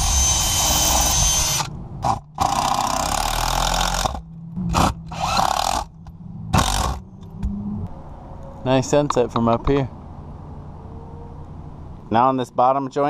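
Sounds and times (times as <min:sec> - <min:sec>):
power drill driving screws into wood: 0:00.0 - 0:05.9, 0:06.6 - 0:07.0.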